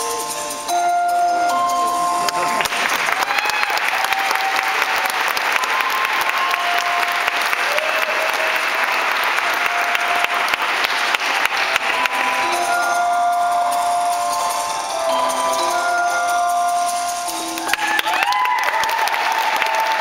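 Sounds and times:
audience applauding: 2.2s - 12.8s, 17.4s - 20.0s.

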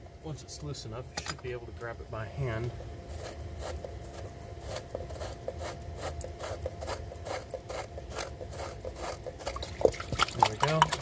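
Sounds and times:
threads rasping: 3.1s - 11.0s.

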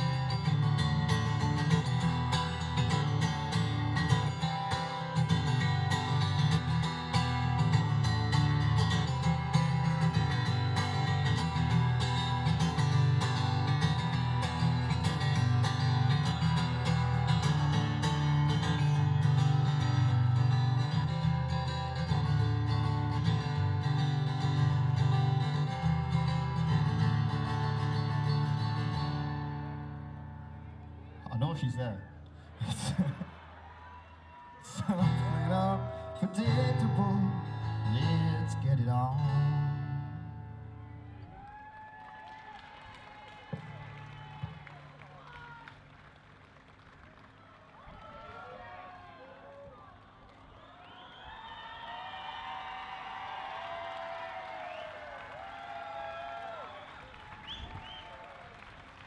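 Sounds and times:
strummed acoustic guitar music: 0.0s - 31.5s, 34.7s - 41.2s.

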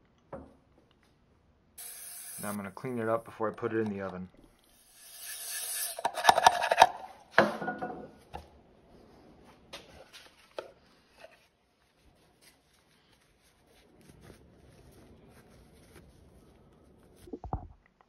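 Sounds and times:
aerosol spray hissing: 1.8s - 3.2s
knocks and clatter on bench: 6.2s - 8.1s.

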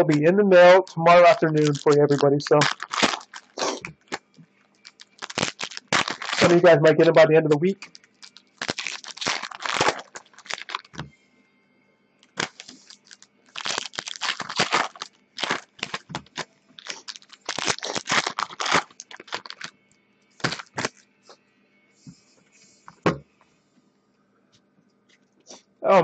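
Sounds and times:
wrapper tearing and crinkling: 0.8s - 7.2s, 7.8s - 11.1s, 12.3s - 19.7s, 20.4s - 21.0s.

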